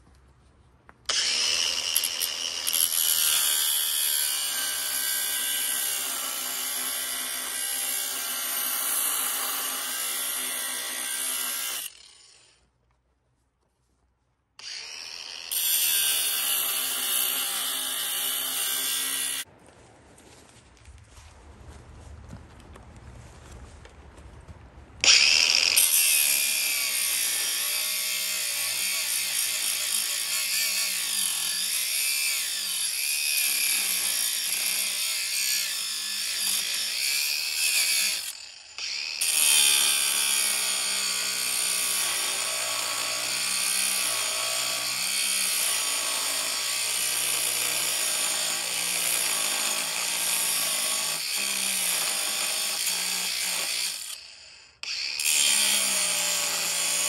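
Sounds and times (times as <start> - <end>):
handheld power tool motor: 1.1 - 12.6, 14.6 - 19.5, 25.0 - 57.0.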